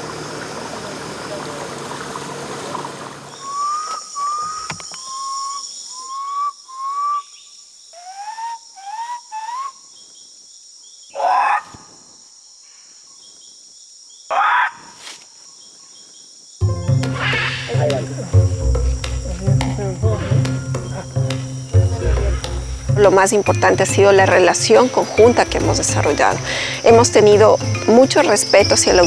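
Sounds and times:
high insect drone: 0:00.0 - 0:29.0
man calling through cupped hands: 0:19.2 - 0:22.7.

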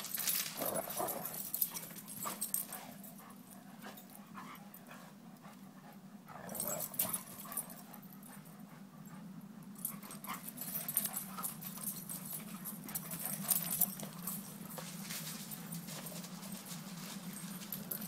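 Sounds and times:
dogs scuffling in mulch: 0:00.0 - 0:03.4, 0:12.4 - 0:18.0.

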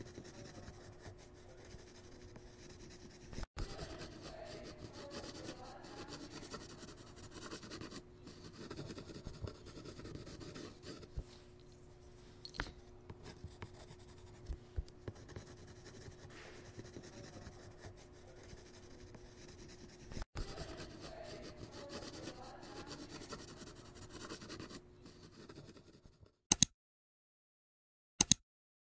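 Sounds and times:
stylus scratching on screen: 0:00.0 - 0:11.3, 0:13.1 - 0:26.7
sharp clicks: 0:26.5 - 0:26.7, 0:28.2 - 0:28.4.

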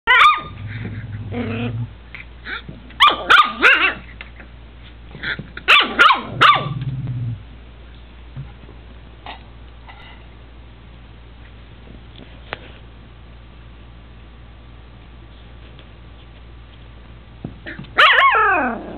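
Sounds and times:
puppy yapping barks: 0:00.1 - 0:00.6, 0:03.0 - 0:04.0, 0:05.6 - 0:06.8, 0:18.0 - 0:18.7
puppy growling: 0:00.4 - 0:02.6, 0:06.6 - 0:07.4, 0:17.7 - 0:18.9.

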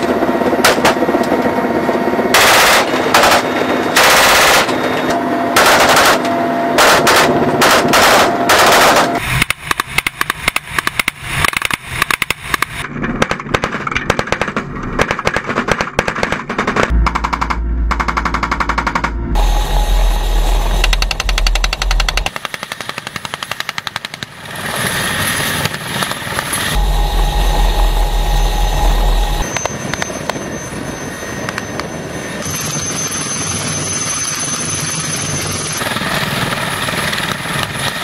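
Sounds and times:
helicopter turbine whine: 0:00.0 - 0:13.2, 0:16.7 - 0:38.0
helicopter rotor rumble: 0:00.0 - 0:38.0
rapid sharp gunshots: 0:02.3 - 0:04.8, 0:05.6 - 0:06.2, 0:06.8 - 0:19.1
machine gun bursts: 0:02.4 - 0:04.8, 0:05.6 - 0:06.2, 0:06.8 - 0:09.2.

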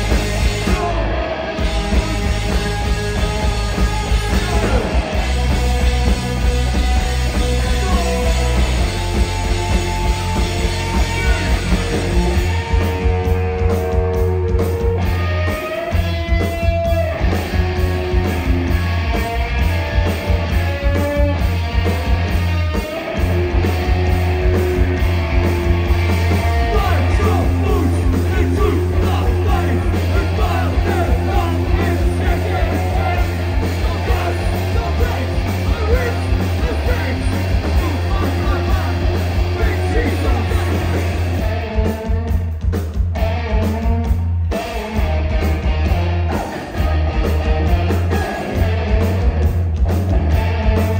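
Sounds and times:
punk rock band playing: 0:00.0 - 0:50.9
person singing: 0:07.3 - 0:09.0, 0:26.6 - 0:41.2.

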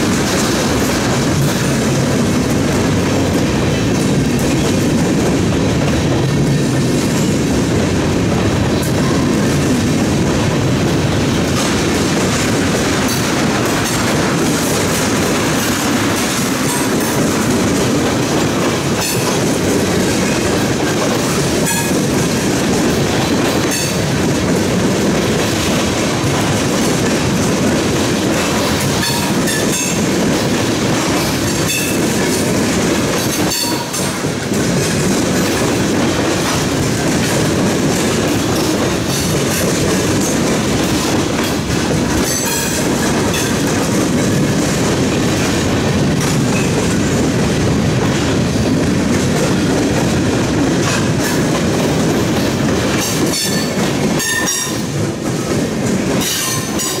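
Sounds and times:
freight train rumbling past: 0:00.0 - 0:57.0
train wheel clicks: 0:00.0 - 0:57.0.

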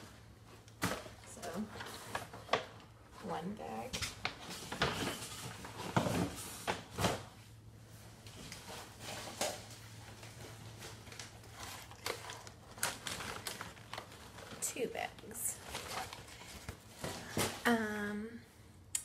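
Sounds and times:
bags rustling: 0:04.1 - 0:17.7.

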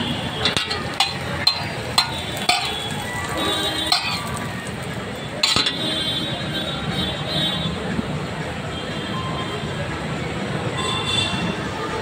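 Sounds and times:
metal spatula scraping on griddle: 0:00.0 - 0:04.8, 0:05.4 - 0:06.1.

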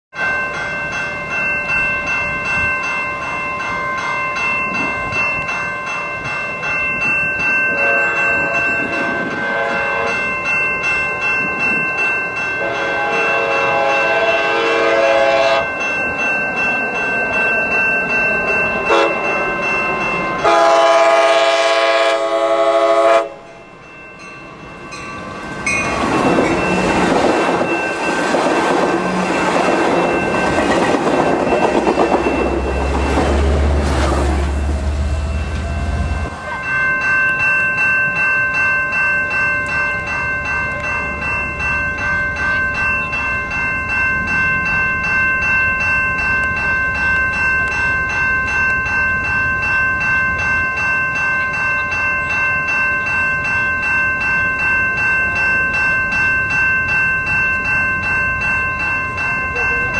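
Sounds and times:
crossing bell ringing: 0:00.1 - 0:59.9
train cars rumbling past: 0:00.2 - 0:59.9
train horn blasts: 0:07.8 - 0:10.2, 0:12.6 - 0:15.7, 0:18.9 - 0:19.2, 0:20.4 - 0:23.5
wheels clacking over rails: 0:25.4 - 0:36.6.

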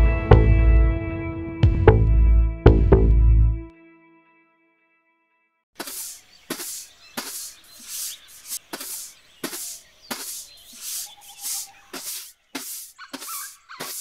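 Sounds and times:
scraping on leaf-littered ground: 0:05.8 - 0:14.0.

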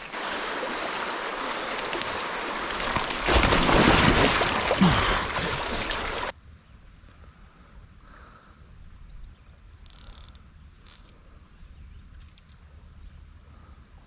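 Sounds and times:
water rushing over rocks: 0:00.0 - 0:06.3.

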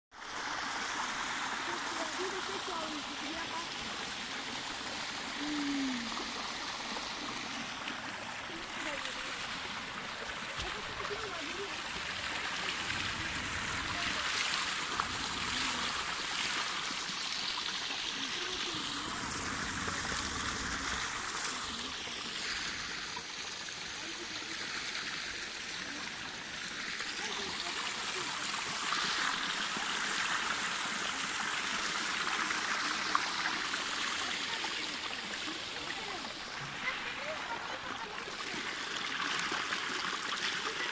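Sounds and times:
stream trickling over rocks: 0:00.1 - 0:40.9
low rumble: 0:12.3 - 0:16.2, 0:18.7 - 0:21.8.

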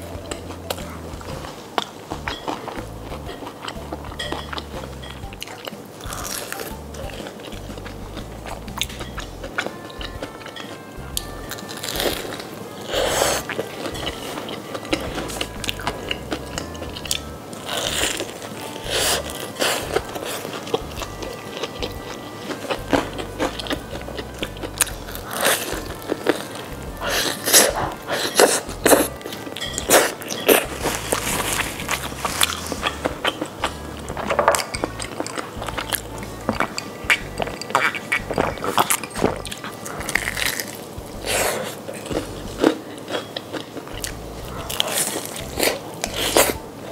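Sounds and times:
background music: 0:00.0 - 0:46.9
crunching bites and chewing: 0:01.8 - 0:10.5, 0:27.1 - 0:46.6.

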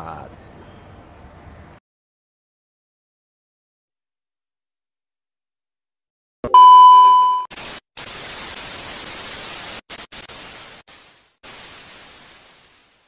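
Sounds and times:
high test-pattern beep: 0:06.5 - 0:07.5.

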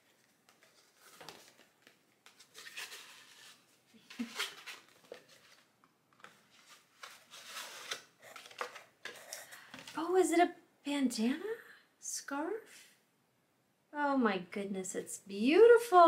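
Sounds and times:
wrapping paper rustling: 0:00.0 - 0:09.3.

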